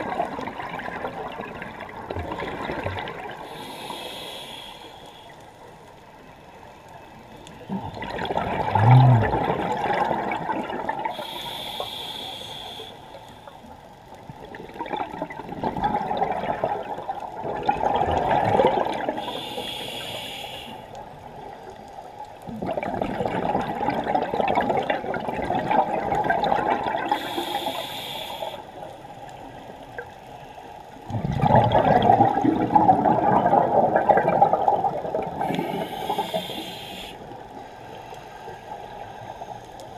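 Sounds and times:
diver inhaling through regulator: 3.4s - 5.4s, 11.1s - 13.6s, 19.2s - 20.9s, 27.0s - 28.8s, 35.4s - 37.4s
exhaust bubbles rushing: 7.7s - 11.1s, 14.8s - 19.1s, 22.5s - 27.1s, 31.1s - 35.7s.

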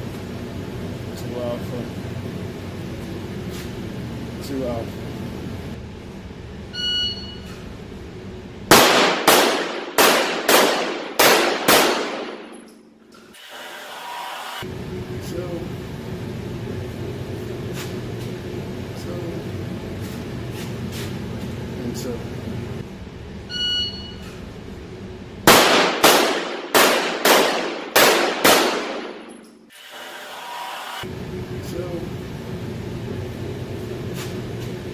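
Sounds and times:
pistol shots ringing indoors: 8.7s - 12.9s, 25.4s - 29.7s.

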